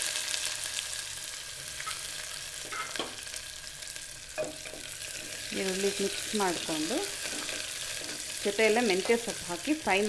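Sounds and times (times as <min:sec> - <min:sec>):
onions sizzling in hot oil: 0:00.0 - 0:10.0
spatula scraping and knocking pot: 0:04.4 - 0:05.5, 0:06.5 - 0:08.4.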